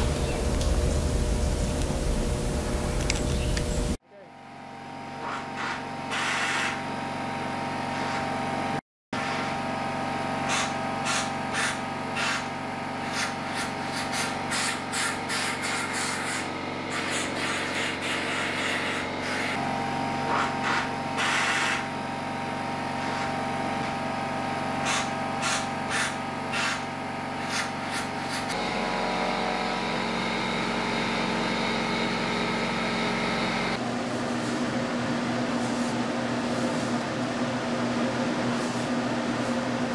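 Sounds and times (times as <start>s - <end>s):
machine humming: 0.0s - 5.2s, 9.5s - 39.9s
compressed air hissing blasts: 10.5s - 19.6s, 20.6s - 21.9s, 24.8s - 28.5s.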